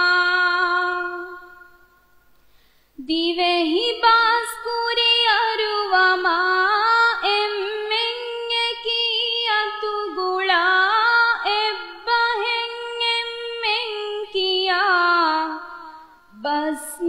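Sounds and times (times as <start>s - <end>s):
woman singing unaccompanied: 0.0s - 1.8s, 3.0s - 17.0s.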